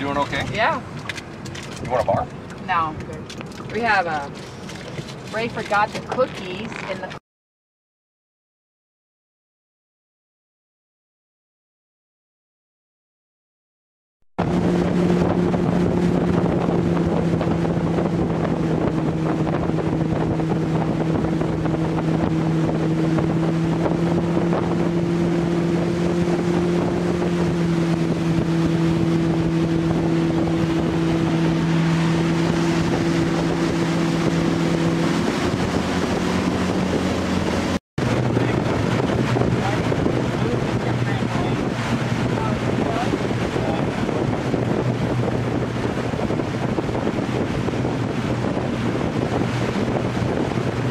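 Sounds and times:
water rushing past hull: 0:00.0 - 0:07.1, 0:14.4 - 0:50.9
motorboat engine running: 0:00.0 - 0:07.2, 0:14.4 - 0:50.9
wind buffeting microphone: 0:14.4 - 0:50.9.

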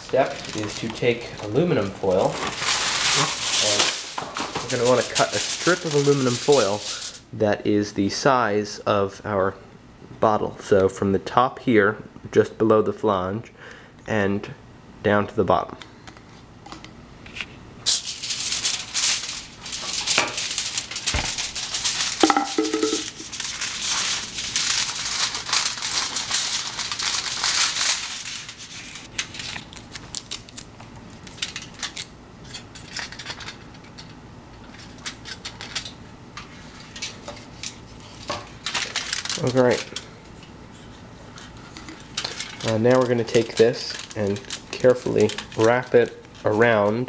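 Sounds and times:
aluminum foil crinkling: 0:00.0 - 0:07.3, 0:17.8 - 0:47.0
scissors cutting foil: 0:01.8 - 0:07.1, 0:17.9 - 0:33.6, 0:38.6 - 0:40.0, 0:42.2 - 0:46.5.

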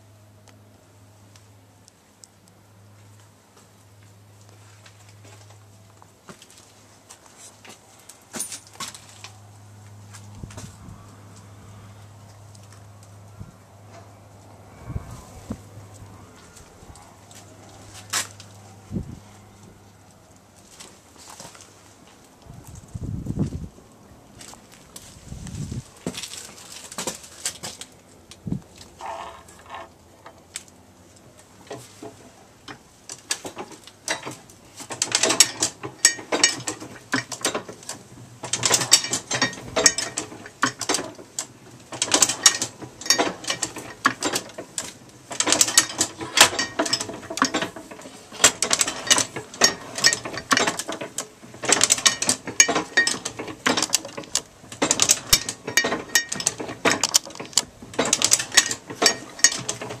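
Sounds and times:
heavy press clanks: 0:33.3 - 0:37.8, 0:38.4 - 0:41.2, 0:41.9 - 1:00.0
printing press clattering: 0:38.4 - 0:41.2, 0:45.3 - 1:00.0.

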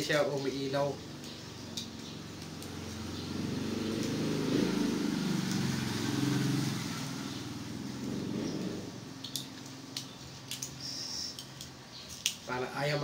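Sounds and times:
vehicle engine passing by: 0:00.9 - 0:09.2.

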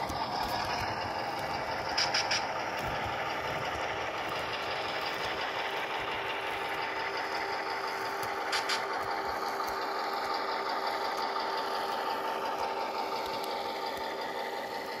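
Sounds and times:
model diesel engine sound from speaker: 0:00.0 - 0:15.0
faint clicks: 0:11.0 - 0:14.3.

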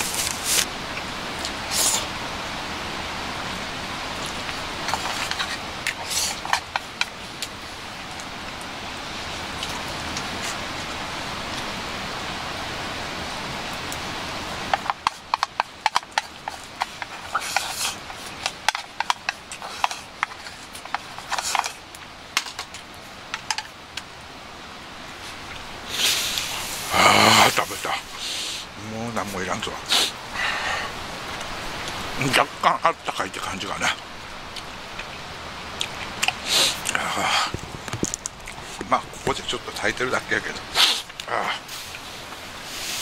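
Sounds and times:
steady hiss: 0:00.0 - 0:43.0
chopsticks tapping on metal tin: 0:14.7 - 0:21.7, 0:22.4 - 0:23.7.

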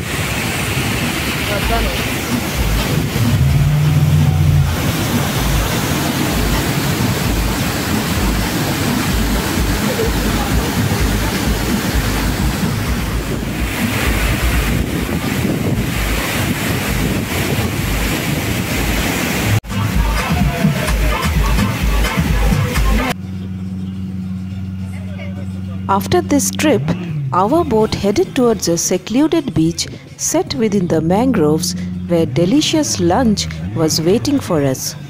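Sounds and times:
low hum: 0:00.0 - 0:17.1, 0:23.1 - 0:34.6
wind rumble on microphone: 0:00.0 - 0:19.6
waterfall rushing: 0:00.0 - 0:23.2.

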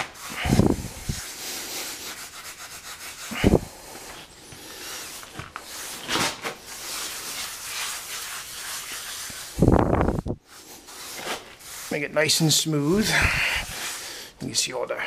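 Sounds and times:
sponge float scraping cement: 0:00.0 - 0:09.8.

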